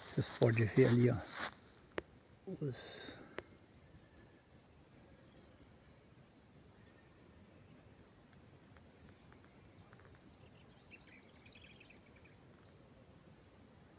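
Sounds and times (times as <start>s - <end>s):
insect chirping: 0.0s - 13.9s
insect buzz: 0.2s - 13.9s
bird chirps: 9.8s - 12.4s.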